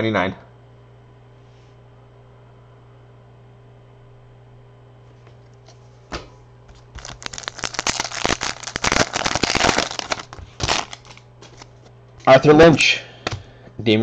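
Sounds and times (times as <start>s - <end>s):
low steady hum: 0.0s - 14.0s
foil wrapper crinkling: 6.7s - 11.7s
sharp snap of foil tearing: 7.0s - 11.7s.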